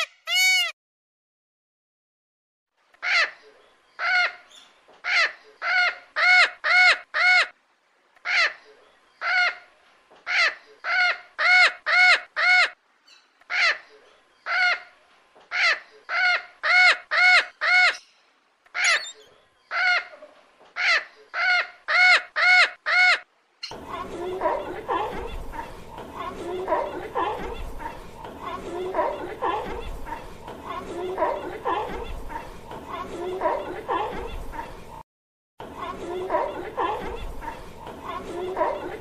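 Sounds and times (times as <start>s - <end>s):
lorikeet squawking: 15.5s - 20.2s.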